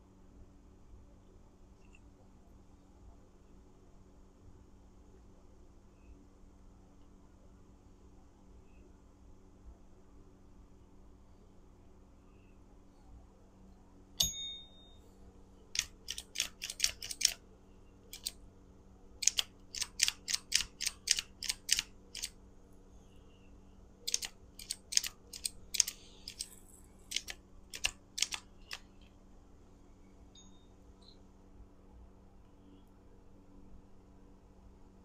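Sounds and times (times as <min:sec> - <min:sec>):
sharp click with brief ring: 0:14.2 - 0:15.0.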